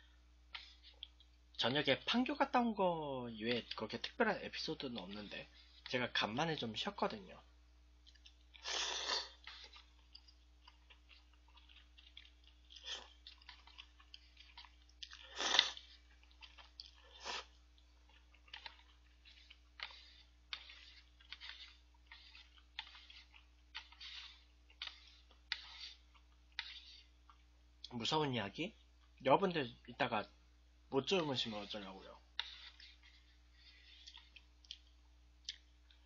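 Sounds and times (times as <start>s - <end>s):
chewing: 0.5s - 1.6s, 8.0s - 27.9s, 32.3s - 36.0s
noodles being slurped: 8.1s - 27.2s.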